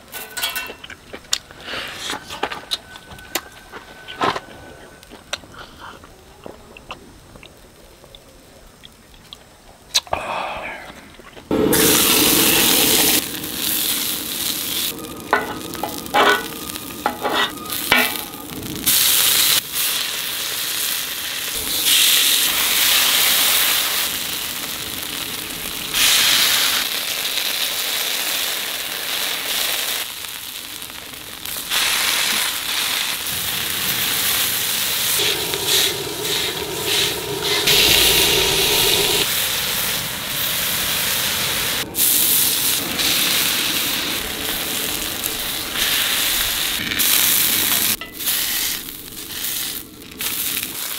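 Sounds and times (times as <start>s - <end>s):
food sizzling in oil on griddle: 0.0s - 0.8s, 11.5s - 50.9s.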